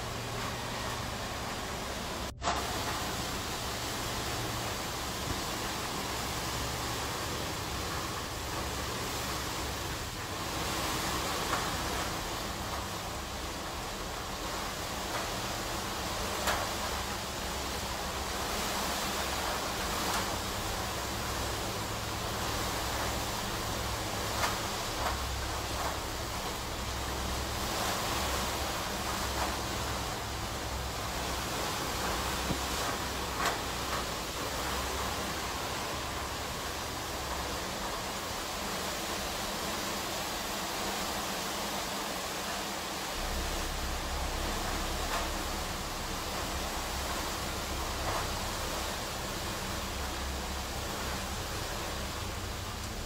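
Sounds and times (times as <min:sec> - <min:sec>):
low rumble: 0:00.0 - 0:18.6, 0:43.1 - 0:53.0
wind and rain rushing: 0:00.0 - 0:53.0.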